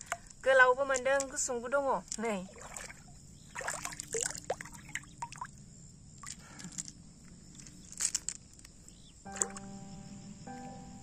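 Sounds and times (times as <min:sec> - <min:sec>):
water splashing and dripping: 0:02.1 - 0:05.6, 0:06.2 - 0:06.9, 0:09.3 - 0:09.7.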